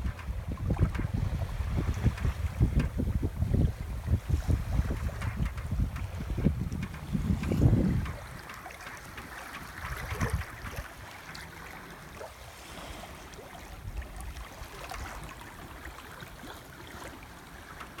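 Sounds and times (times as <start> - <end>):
wind buffeting microphone: 0.0 - 11.2
water rushing along a hull: 0.0 - 18.0.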